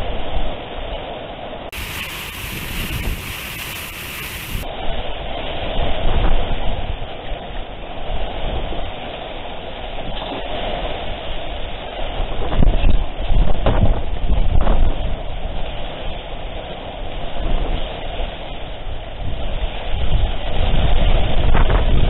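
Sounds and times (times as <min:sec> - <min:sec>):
rain hissing: 0:01.7 - 0:04.7
wind buffeting microphone: 0:01.7 - 0:22.0.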